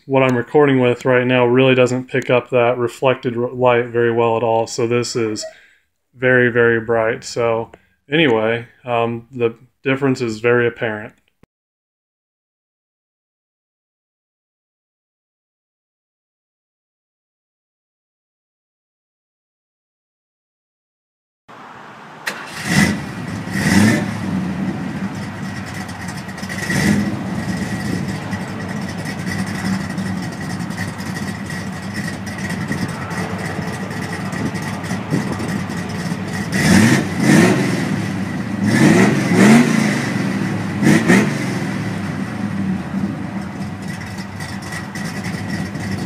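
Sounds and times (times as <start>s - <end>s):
car engine starting and idling: 0.0s - 5.6s, 21.5s - 46.0s
engine throttle revs: 21.5s - 46.0s.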